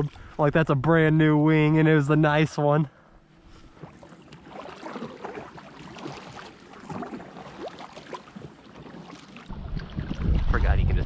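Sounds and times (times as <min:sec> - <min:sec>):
paddle splashing water: 0:03.4 - 0:10.9.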